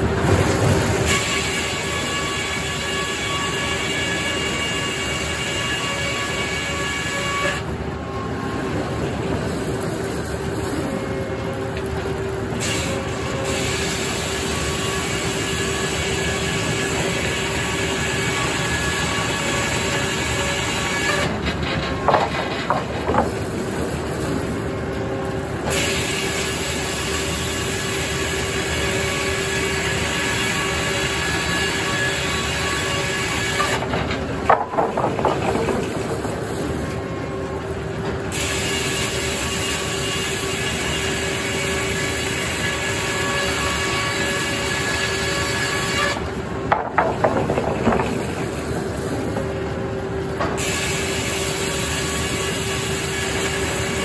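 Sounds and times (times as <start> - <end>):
sawmill blade sawing logs: 0.0 - 54.0
clattering knocks: 21.4 - 23.4, 33.6 - 37.0, 46.7 - 49.5.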